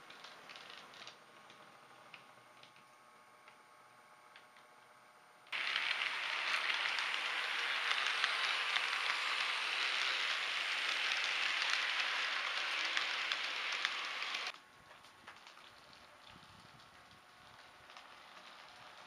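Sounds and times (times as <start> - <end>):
model train wheels clattering: 5.5 - 14.6.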